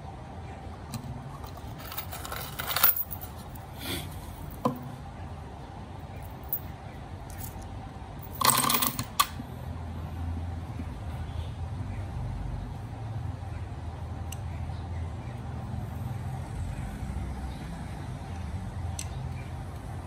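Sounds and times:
small metal pieces clinking: 0:01.4 - 0:03.4.

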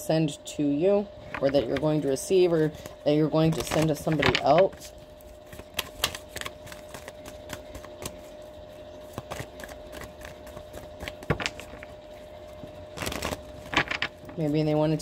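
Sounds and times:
faint steady hum: 0:00.0 - 0:15.0
cards clicking and tapping: 0:05.5 - 0:08.3, 0:09.0 - 0:11.9.

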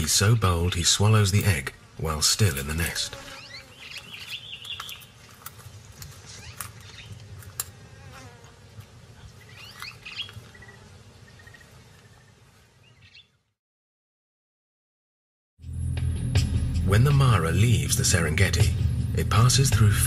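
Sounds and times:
insects buzzing: 0:00.2 - 0:13.0
bird chirps: 0:03.3 - 0:05.3, 0:06.3 - 0:07.2, 0:09.4 - 0:13.4.

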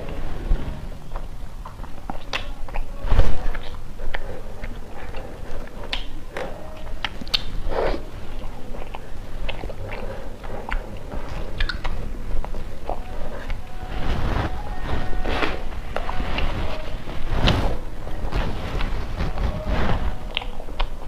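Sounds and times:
chewing and mouth clicks: 0:01.1 - 0:13.8, 0:20.3 - 0:21.0.

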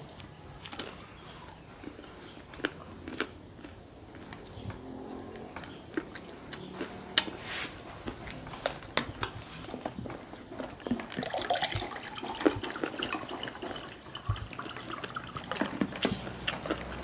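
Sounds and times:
juice pouring into a glass: 0:11.2 - 0:15.4.

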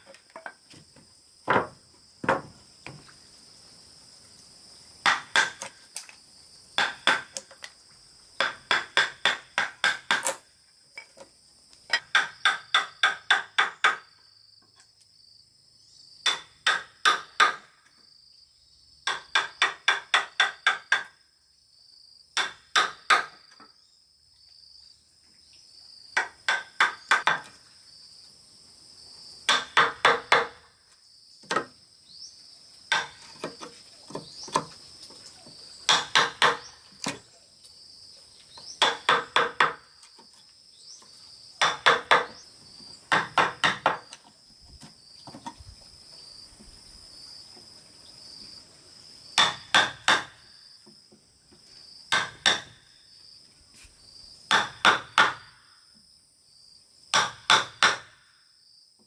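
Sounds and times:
insects droning: 0:00.0 - 0:59.0
mallet striking chisel: 0:52.1 - 0:52.7.

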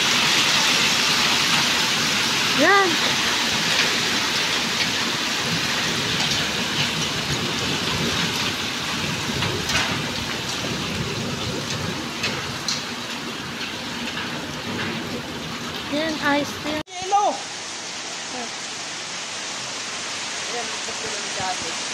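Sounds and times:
hailstones ticking on surfaces: 0:00.0 - 0:17.4
hail and rain on hard ground: 0:00.0 - 0:21.9.

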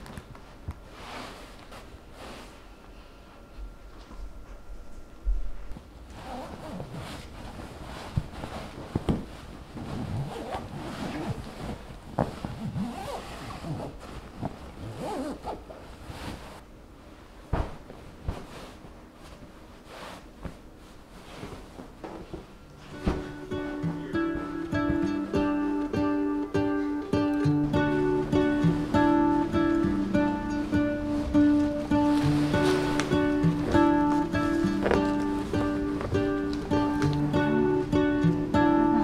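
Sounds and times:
fabric rustling and brushing: 0:00.0 - 0:02.9, 0:05.5 - 0:39.0
acoustic guitar music: 0:22.5 - 0:39.0.

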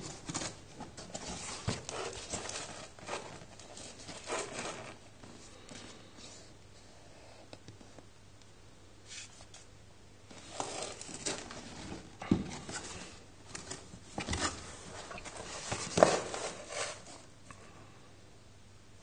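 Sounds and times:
cardboard box scraping and rubbing: 0:00.0 - 0:05.0, 0:10.3 - 0:17.3.

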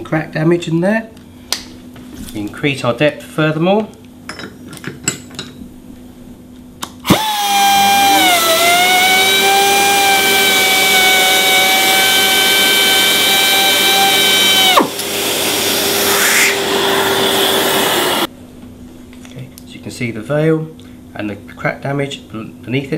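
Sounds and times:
dust extraction vacuum hum: 0:06.8 - 0:18.3
sander motor whine cutting: 0:07.1 - 0:18.3.

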